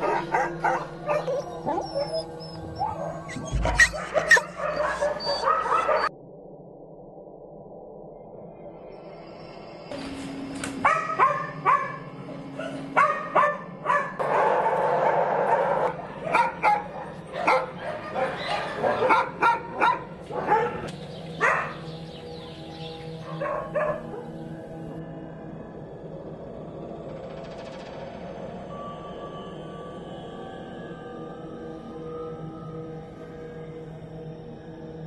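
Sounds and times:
dogs barking: 0.0s - 6.1s, 10.8s - 24.4s
low steady drone: 6.1s - 35.0s.

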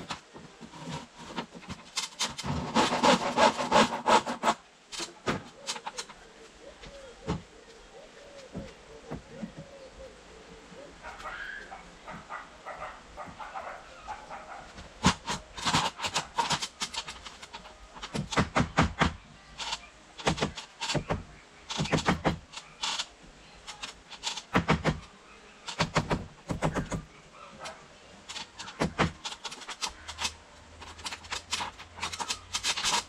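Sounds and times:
hammer knocking nails into wood: 18.0s - 19.2s, 20.2s - 22.4s, 28.6s - 30.2s.

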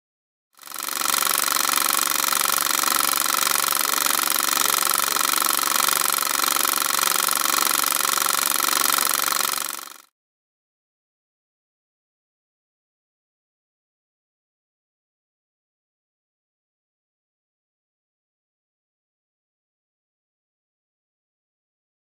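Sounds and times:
fast mechanical rattle: 0.6s - 10.1s.

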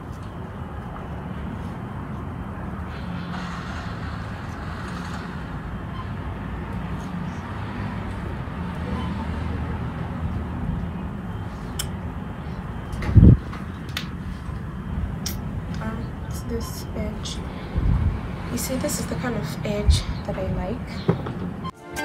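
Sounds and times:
low hum: 0.0s - 21.7s.

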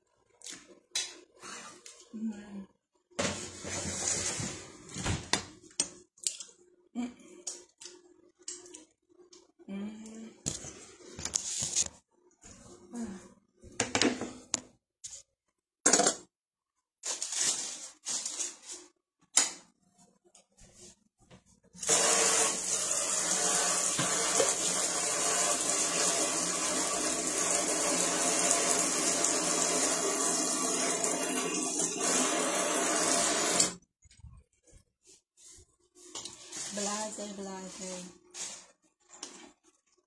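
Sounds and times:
tap water running into sink: 21.8s - 33.8s.

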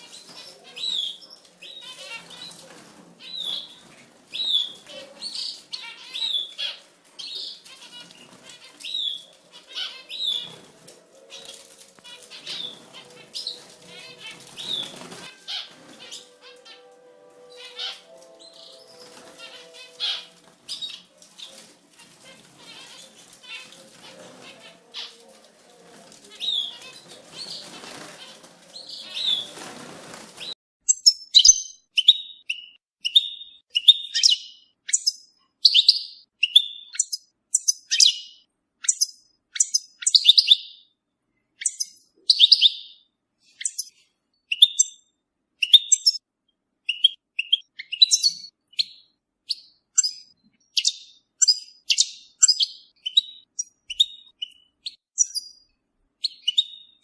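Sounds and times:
bird twittering song: 30.9s - 41.0s, 41.6s - 46.2s, 46.8s - 57.0s.

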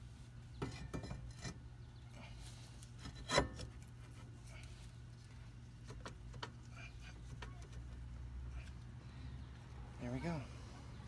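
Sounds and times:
metal scraping and knocks: 0.6s - 1.6s, 3.0s - 3.8s.

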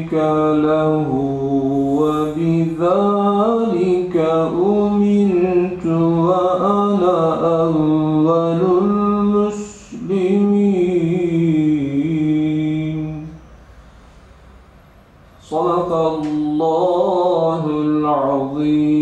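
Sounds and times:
man chanting melodically: 0.0s - 13.5s, 15.4s - 19.0s.

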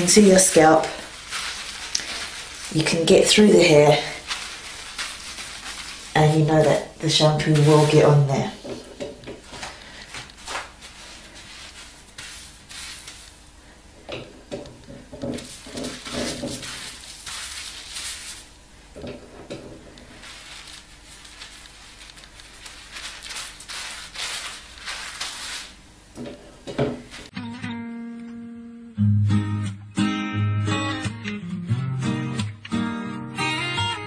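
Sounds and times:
hands rubbing lather through hair: 0.0s - 13.5s, 15.3s - 18.6s, 19.2s - 25.8s, 27.0s - 27.3s.

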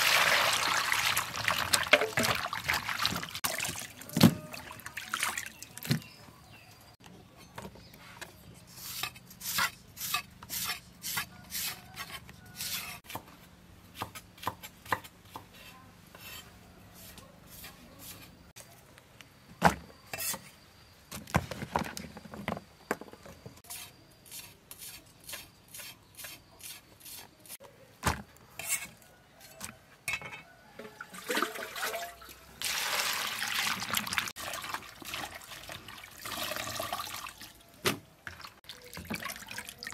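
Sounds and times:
water sloshing and splashing: 0.0s - 6.1s, 30.8s - 39.9s.

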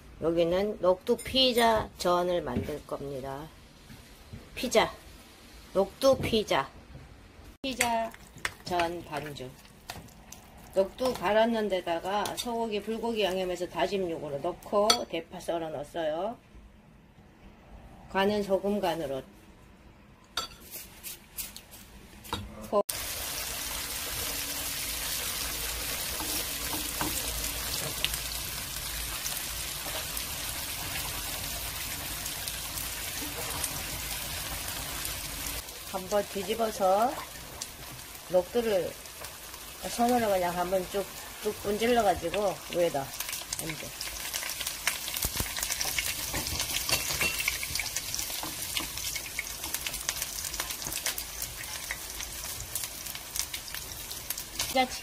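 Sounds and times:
batter sizzling in hot oil: 22.9s - 55.0s.

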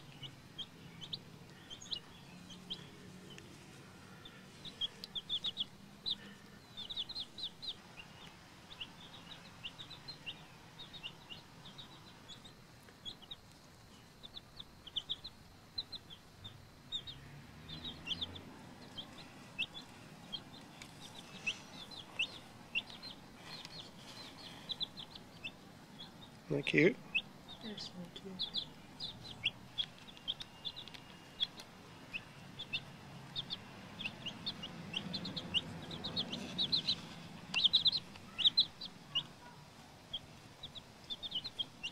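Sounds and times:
chicks peeping: 0.0s - 41.9s.

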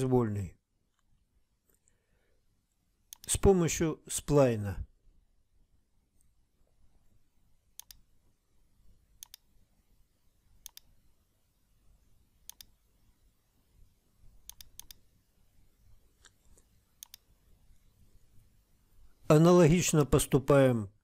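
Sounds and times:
computer mouse clicks: 3.1s - 3.4s, 7.8s - 8.0s, 9.2s - 9.5s, 10.6s - 10.9s, 12.4s - 12.8s, 14.4s - 15.0s, 16.2s - 17.3s.

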